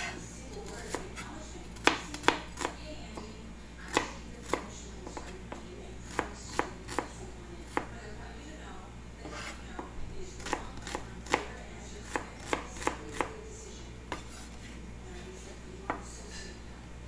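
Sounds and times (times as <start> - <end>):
knife chopping on cutting board: 0.0 - 2.8, 3.9 - 7.1, 9.2 - 13.3, 14.1 - 14.7.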